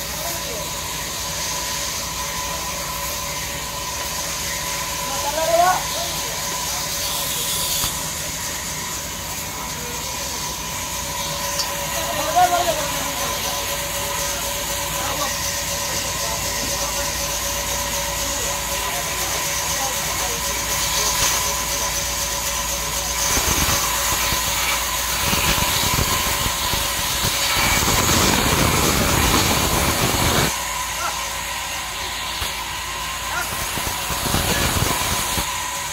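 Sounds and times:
band saw cutting log: 0.0s - 35.9s
band saw running: 0.0s - 35.9s.

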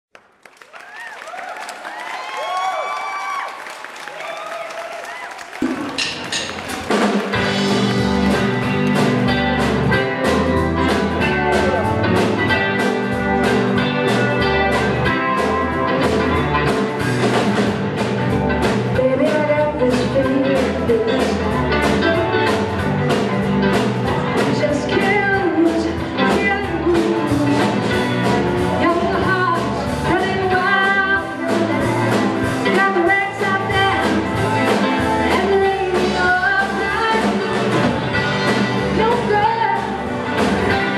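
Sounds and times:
drum kit beat: 5.1s - 40.9s
guitars playing: 5.9s - 40.9s
person singing: 18.8s - 40.9s.

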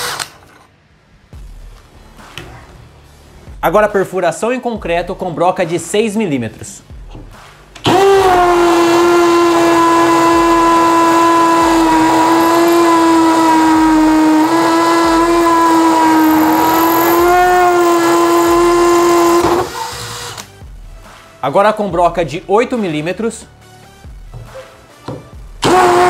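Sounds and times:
hammer drill boring into concrete: 7.8s - 20.5s, 25.6s - 26.0s.

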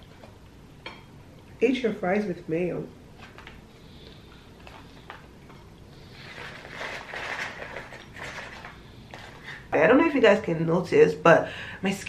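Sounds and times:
fries sliding out of paper box: 6.1s - 9.6s.

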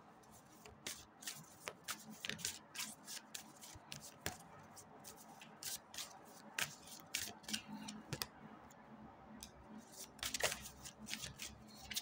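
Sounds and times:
cards snapping and rustling: 10.2s - 12.0s.

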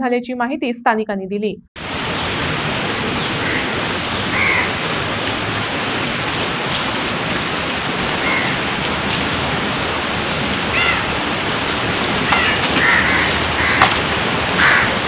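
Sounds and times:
stream water rushing: 1.8s - 15.0s
crow cawing: 3.2s - 4.9s, 8.1s - 8.7s, 10.7s - 11.2s, 12.2s - 15.0s.

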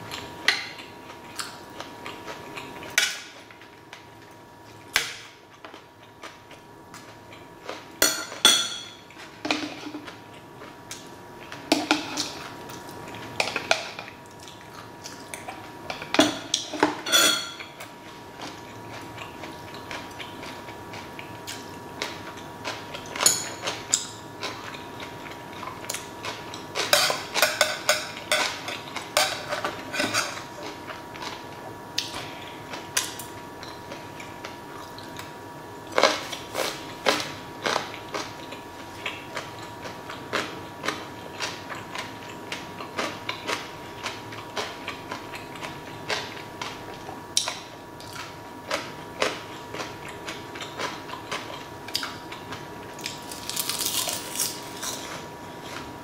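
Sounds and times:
metal utensils clinking on dishes: 17.0s - 17.7s.

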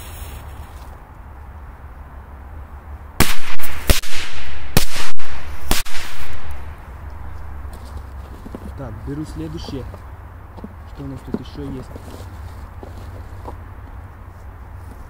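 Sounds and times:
firecrackers exploding: 3.2s - 6.8s.

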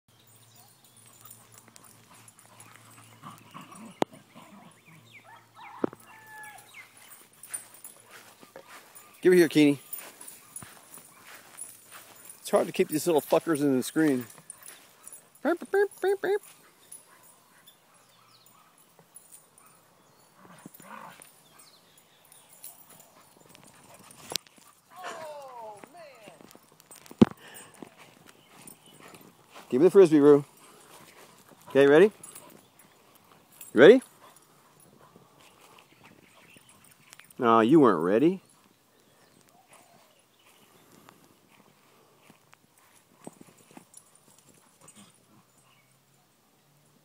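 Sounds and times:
small dogs whining and yipping: 0.6s - 7.9s.

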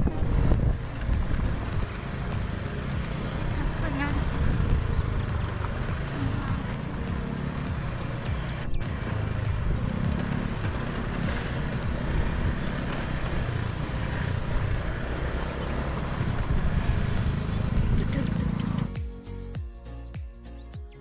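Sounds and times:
wind noise on microphone: 0.0s - 6.6s, 16.0s - 18.2s
motorcycle engine revving: 0.0s - 19.0s.

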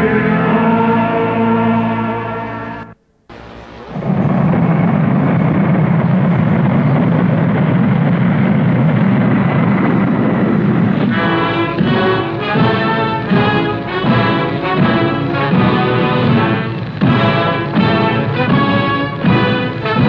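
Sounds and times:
brass music sustained chords: 0.0s - 4.2s, 10.3s - 20.0s
low rumbling noise: 0.0s - 20.0s.

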